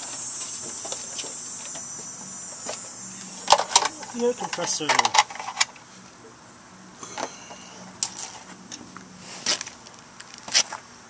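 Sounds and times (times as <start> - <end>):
hose clattering on concrete: 3.4 - 5.7.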